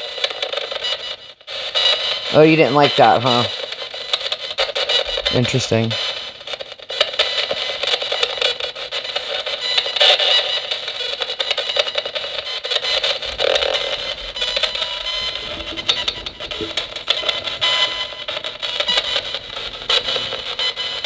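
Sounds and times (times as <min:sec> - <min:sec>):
clipped broadcast snatches: 0:00.0 - 0:21.0
radio static sweeping stations: 0:02.3 - 0:06.4, 0:12.1 - 0:21.0.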